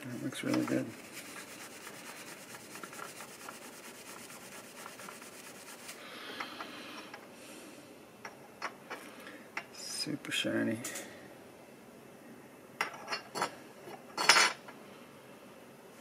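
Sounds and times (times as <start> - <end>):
rubbing on metal toy car: 0.5 - 6.0.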